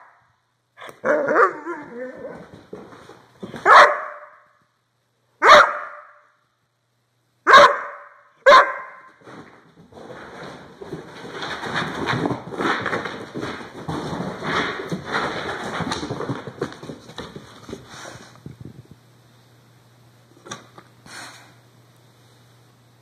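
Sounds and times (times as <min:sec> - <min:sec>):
dog barking loudly: 0:03.6 - 0:04.4, 0:05.4 - 0:06.2, 0:07.4 - 0:09.1.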